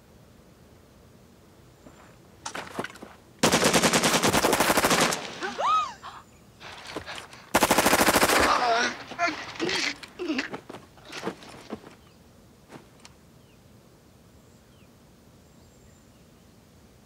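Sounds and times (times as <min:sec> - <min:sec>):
automatic weapon fire: 0:03.4 - 0:05.6, 0:07.5 - 0:09.1.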